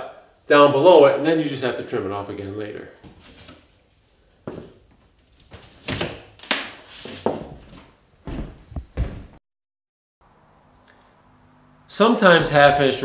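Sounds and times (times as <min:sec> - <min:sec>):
dull thumps: 0:07.6 - 0:09.4.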